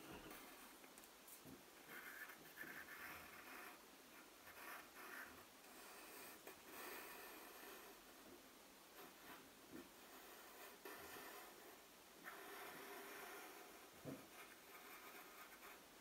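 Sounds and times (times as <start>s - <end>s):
pencil scratching on paper: 0.0s - 0.7s, 1.8s - 8.0s, 9.0s - 15.9s.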